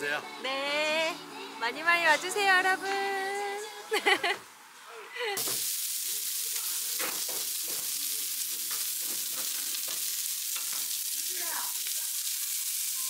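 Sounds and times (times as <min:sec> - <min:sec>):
meat sizzling on grill plate: 0:05.4 - 0:13.0.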